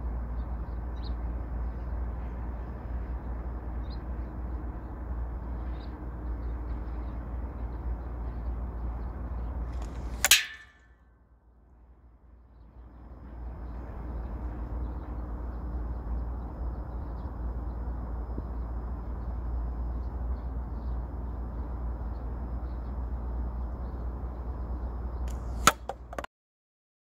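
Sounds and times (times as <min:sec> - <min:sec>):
wind rumble on microphone: 0:12.9 - 0:25.3
ball striking plastic bottle: 0:25.3 - 0:26.3.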